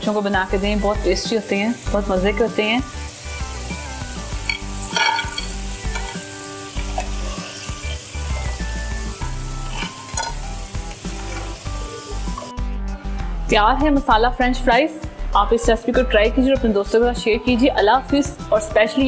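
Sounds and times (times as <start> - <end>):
hot oil sizzling: 0.0 - 12.6.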